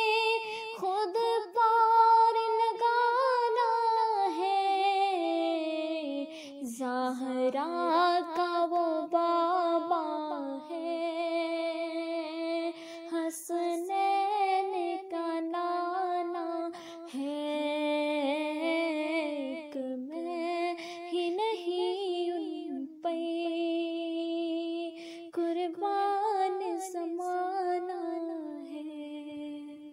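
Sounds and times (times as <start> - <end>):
woman singing unaccompanied: 0.0 - 29.9.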